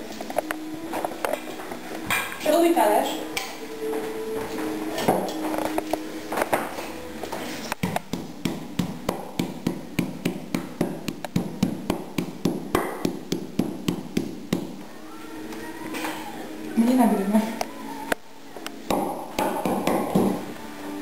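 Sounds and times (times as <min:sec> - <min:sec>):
meat mallet pounding meat: 0:07.8 - 0:14.8, 0:18.9 - 0:20.4.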